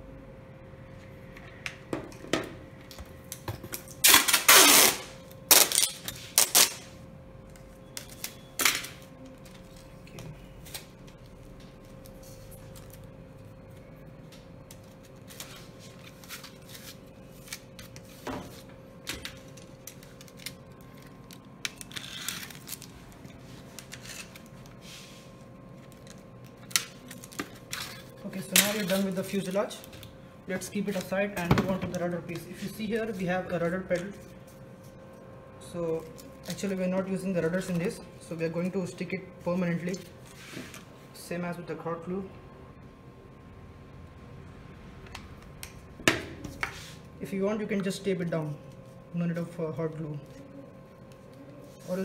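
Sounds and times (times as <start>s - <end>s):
tape ripping off roll: 4.0s - 6.9s.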